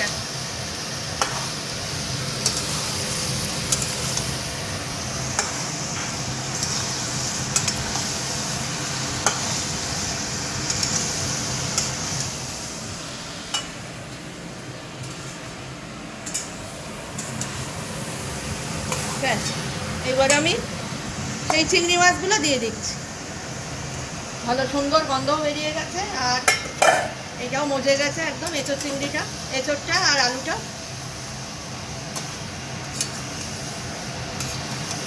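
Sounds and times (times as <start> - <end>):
vegetables sizzling in a pan: 0.0 - 35.0.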